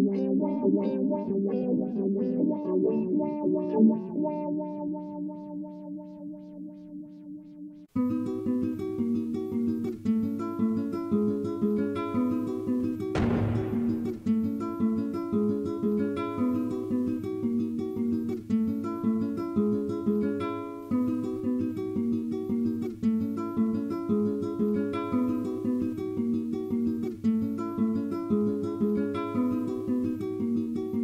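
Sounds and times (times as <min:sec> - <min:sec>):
plucked string instrument melody: 0:08.0 - 0:31.0.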